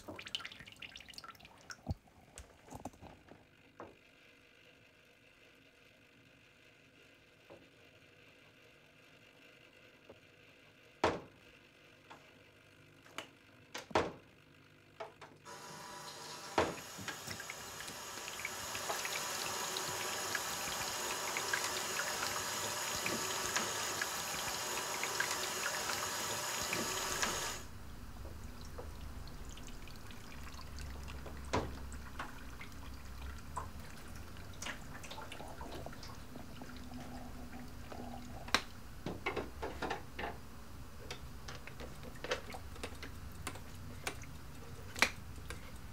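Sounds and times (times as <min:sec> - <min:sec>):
tap water pouring into tray: 0:00.0 - 0:02.0, 0:15.5 - 0:38.7
water drips: 0:00.0 - 0:02.0, 0:16.8 - 0:27.6, 0:28.2 - 0:38.8.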